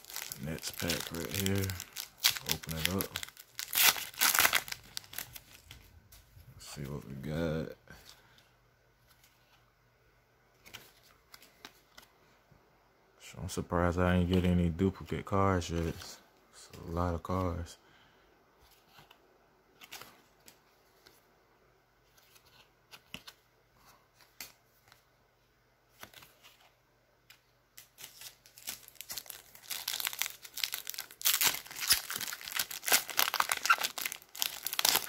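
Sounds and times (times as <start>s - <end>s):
foil pack crinkling and tearing: 0.0s - 5.7s, 27.8s - 35.0s.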